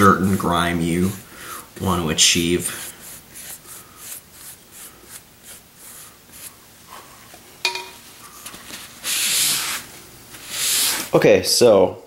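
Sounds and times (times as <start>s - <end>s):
paintbrush scrubbing: 2.2s - 7.2s, 8.2s - 11.1s
sharp clink: 7.7s - 8.0s.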